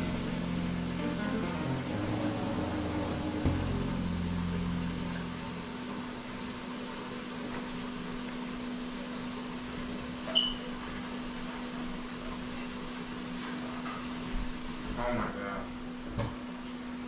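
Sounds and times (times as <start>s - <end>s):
background music: 0.0s - 6.0s
appliance electrical hum: 0.0s - 17.0s.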